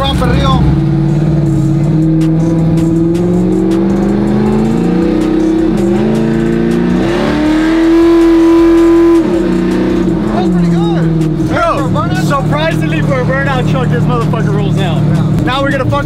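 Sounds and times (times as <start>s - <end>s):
truck engine accelerating: 0.0s - 16.0s.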